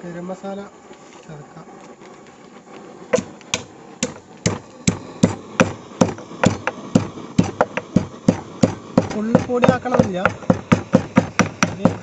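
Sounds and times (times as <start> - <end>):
stone pestle pounding spices: 3.2 - 12.0.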